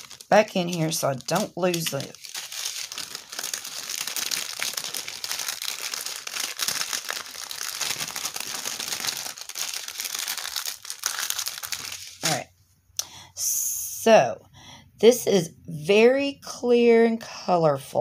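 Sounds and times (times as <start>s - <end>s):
plastic bags crinkling: 0.0s - 12.4s.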